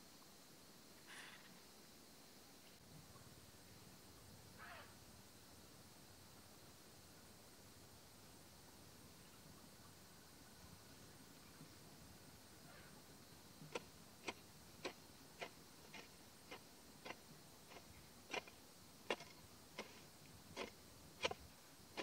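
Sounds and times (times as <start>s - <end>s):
hoe chopping into soil: 13.7s - 21.4s.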